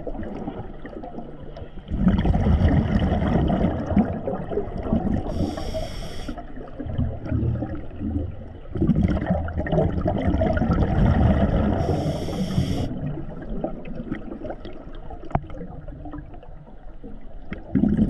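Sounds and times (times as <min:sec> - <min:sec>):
exhaled bubbles gurgling: 0:00.0 - 0:18.0
regulator hissing on inhale: 0:05.3 - 0:06.5, 0:11.8 - 0:12.9.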